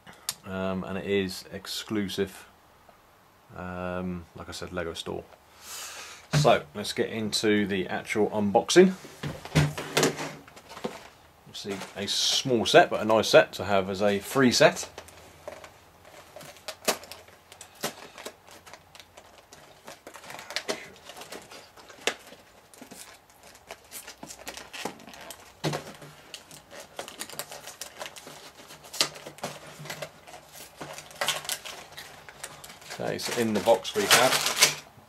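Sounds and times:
cardboard box being opened: 15.4s - 34.7s.

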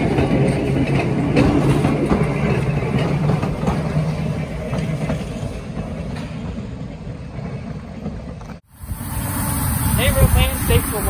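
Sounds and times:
railcar rolling on rails: 0.0s - 11.0s.

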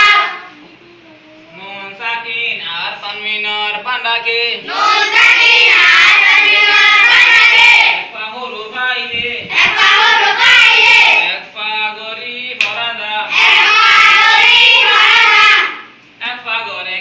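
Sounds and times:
children reciting in unison: 0.0s - 0.6s, 4.6s - 8.1s, 9.5s - 11.4s, 13.3s - 16.0s.

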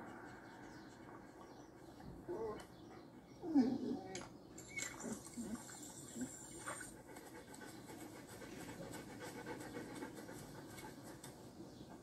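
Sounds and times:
dog panting softly: 6.5s - 12.0s.

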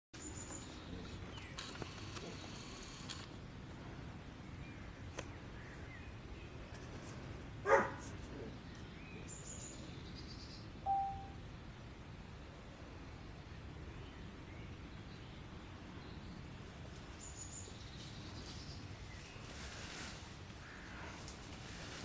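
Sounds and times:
dog barking: 7.6s - 8.0s
faint high bird-like chirps: 9.2s - 11.4s
short steady note: 10.9s - 11.4s.

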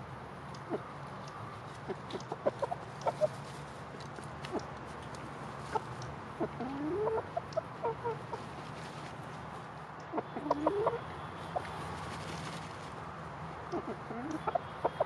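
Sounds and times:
chickens clucking softly: 0.6s - 3.6s, 5.6s - 9.1s, 10.0s - 11.8s, 13.7s - 15.0s.

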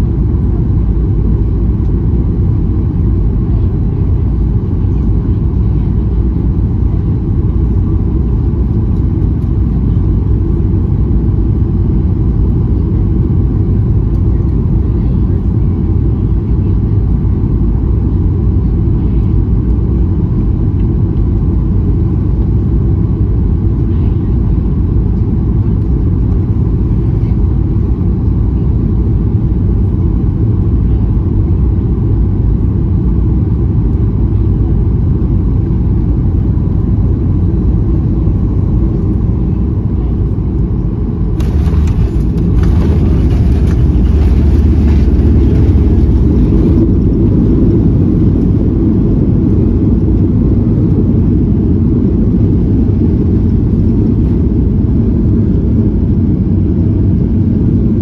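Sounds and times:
airplane cabin rumble: 0.0s - 58.0s
jet engine reverse thrust roar: 36.4s - 58.0s.

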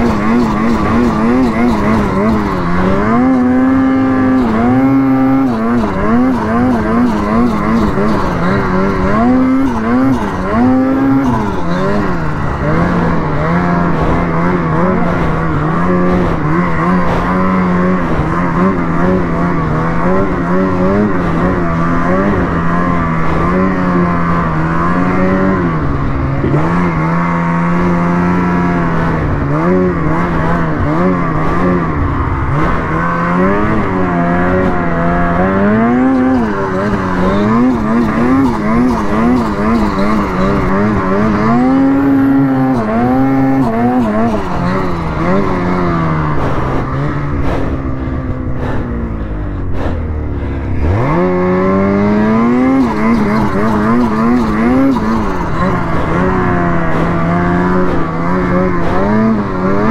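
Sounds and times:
snowmobile two-stroke engine: 0.0s - 59.9s.

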